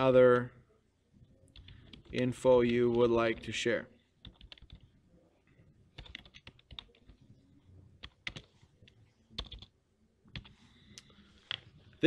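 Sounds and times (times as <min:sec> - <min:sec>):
computer keyboard typing: 0:01.5 - 0:03.5, 0:04.2 - 0:04.9, 0:06.0 - 0:07.2, 0:08.0 - 0:09.7, 0:10.3 - 0:10.6.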